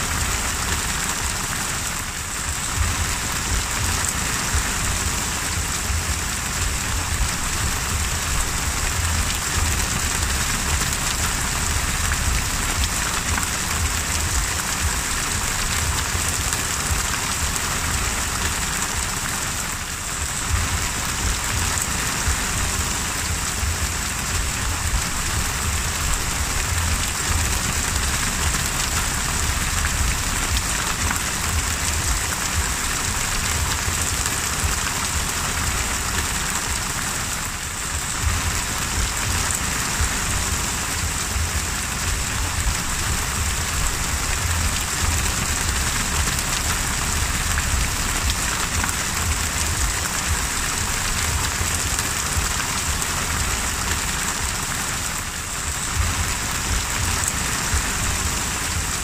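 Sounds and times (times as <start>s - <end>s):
low rumble: 0.0s - 36.8s, 37.6s - 54.7s, 55.4s - 59.0s
heavy rain on the sea: 0.0s - 59.0s.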